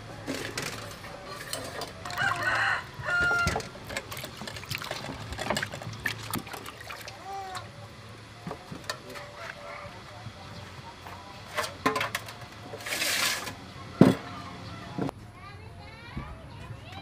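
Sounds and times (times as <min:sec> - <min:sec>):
rooster crowing: 0:02.0 - 0:03.7
water splashing in metal basin: 0:03.5 - 0:07.8.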